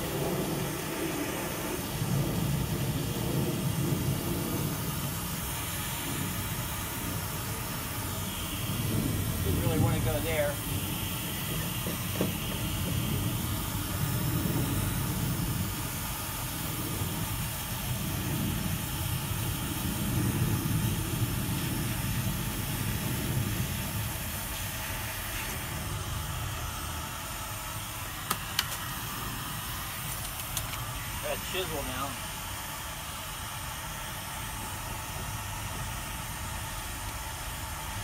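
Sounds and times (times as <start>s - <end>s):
heat gun fan blowing: 0.0s - 38.0s
sharp clicks: 28.2s - 28.9s, 30.1s - 30.8s.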